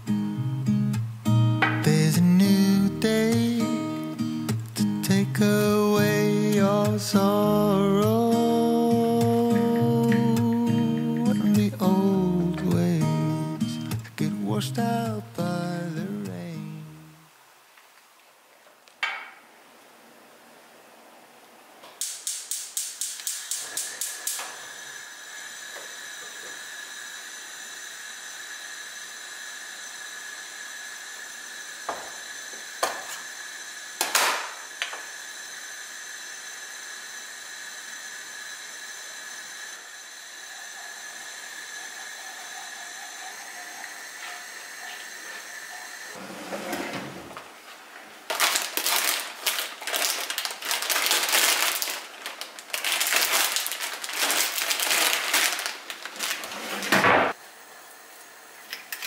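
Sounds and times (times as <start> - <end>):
pan hissing on gas hob: 0.0 - 14.3, 22.0 - 47.6, 48.2 - 59.0
loud rustling and clatter: 48.3 - 57.3.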